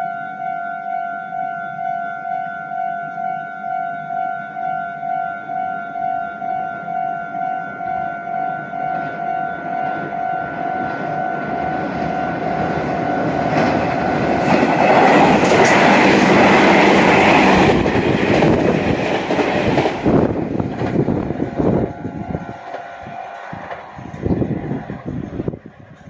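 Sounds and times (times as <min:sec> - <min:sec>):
pulsing electronic warning tone: 0:00.0 - 0:18.6, 0:21.1 - 0:25.6
electric train passing: 0:00.0 - 0:26.0
train wheels clacking on rail joints: 0:10.8 - 0:26.0.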